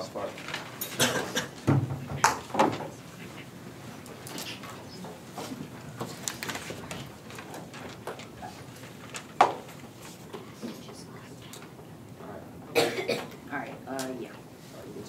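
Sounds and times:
clicks and rustles of papers: 0.0s - 11.9s
knock on wooden podium: 1.6s - 2.8s.

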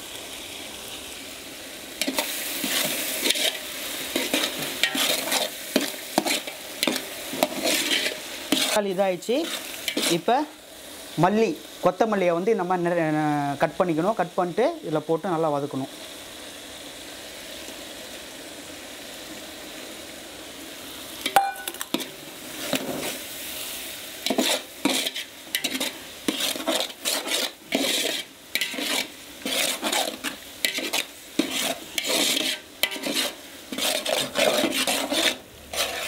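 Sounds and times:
masala sizzling in pot: 0.0s - 36.0s
metal spatula scraping pot: 2.0s - 10.3s, 24.2s - 36.0s.

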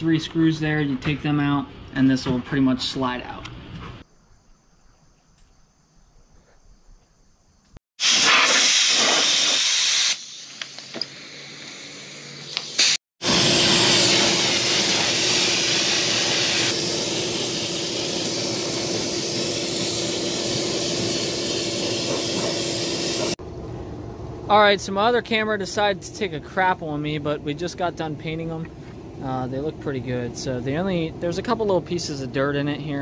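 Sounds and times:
paint spray gun hissing: 8.0s - 23.4s.

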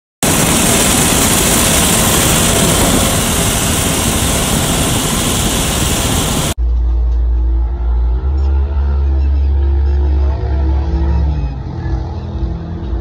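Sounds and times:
tractor diesel engine running: 0.2s - 6.6s
wind noise: 0.2s - 6.6s.

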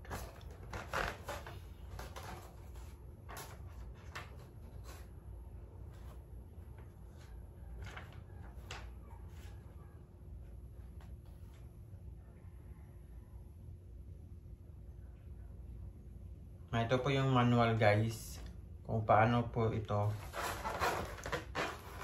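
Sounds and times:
packaging rustling and scraping: 0.0s - 5.2s, 20.0s - 22.0s.

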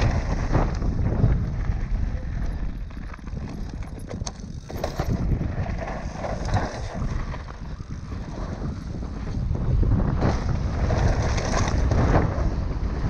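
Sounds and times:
bike tyres crunching on gravel: 0.0s - 13.0s
wind on microphone: 0.0s - 13.0s
bike chain rattling: 1.7s - 9.0s.

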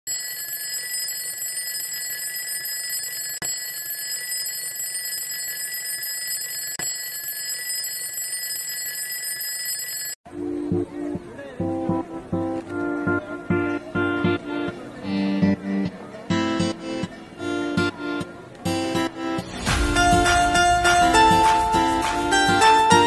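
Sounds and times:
twin-bell alarm clock ringing: 0.1s - 10.2s
guitar music: 10.3s - 23.0s.

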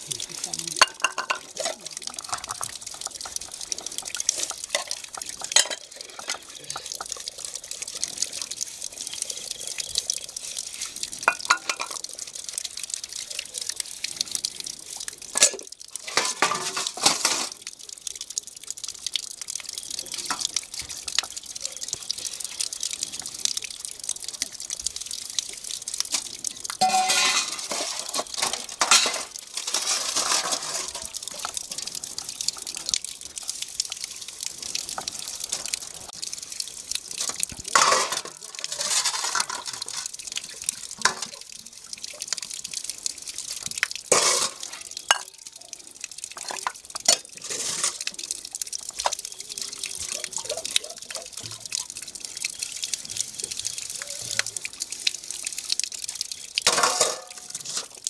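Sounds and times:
water splashing and dripping: 0.0s - 58.0s
steel dishes knocking together: 0.8s - 2.6s, 4.8s - 6.4s, 26.8s - 30.9s.

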